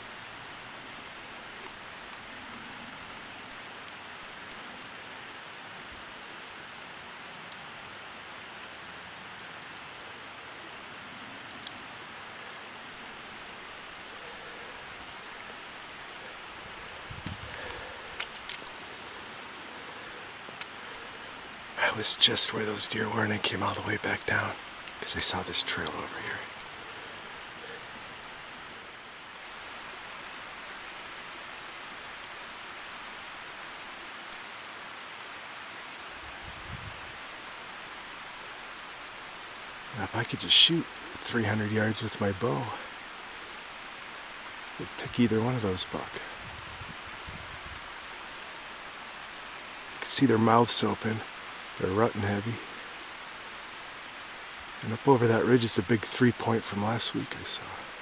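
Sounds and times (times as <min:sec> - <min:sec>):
steady background hiss: 0:00.0 - 0:58.0
faint tick: 0:11.4 - 0:11.8.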